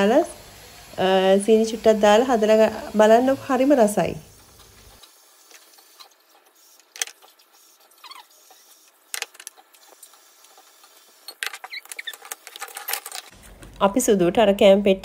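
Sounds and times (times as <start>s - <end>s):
faint high squeaks: 7.9s - 8.6s.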